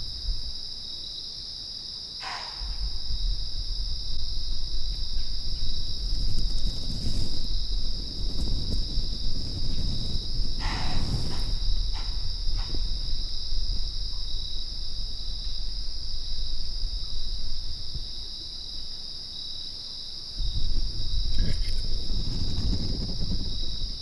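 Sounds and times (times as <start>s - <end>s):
insects trilling: 0.0s - 24.0s
low rumble: 2.5s - 19.0s, 20.4s - 24.0s.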